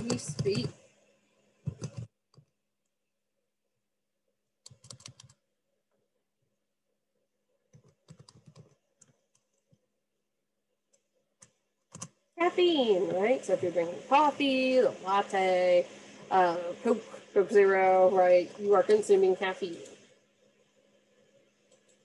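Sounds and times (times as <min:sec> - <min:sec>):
typing on computer keyboard: 0:00.0 - 0:00.8, 0:01.6 - 0:02.6, 0:04.6 - 0:05.5, 0:07.7 - 0:09.8, 0:10.9 - 0:12.2.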